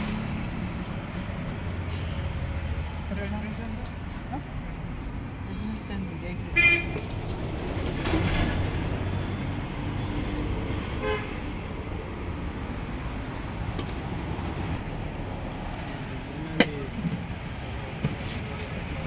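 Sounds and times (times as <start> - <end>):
street traffic rumble: 0.0 - 19.0
vehicle horn toot: 6.6 - 7.0, 11.0 - 11.4.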